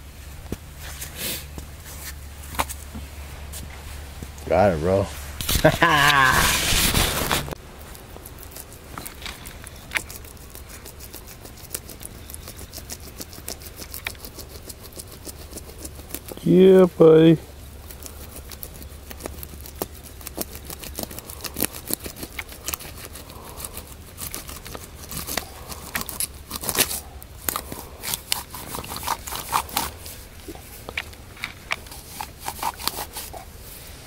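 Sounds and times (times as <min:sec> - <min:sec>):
dry leaves crackling and scraping: 0:00.1 - 0:34.0.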